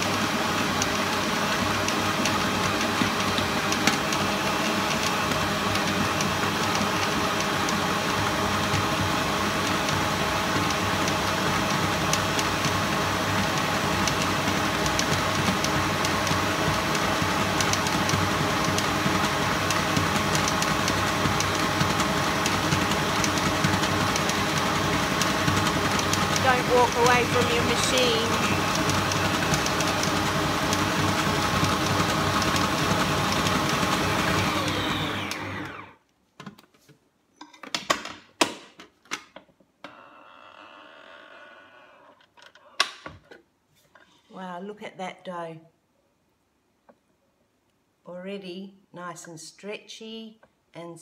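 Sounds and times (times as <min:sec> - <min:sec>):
stand mixer motor hum: 0:00.0 - 0:36.0.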